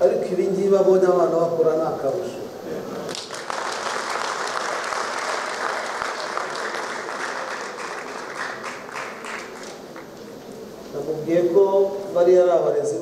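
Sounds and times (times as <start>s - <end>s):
audience applauding: 3.1s - 10.2s.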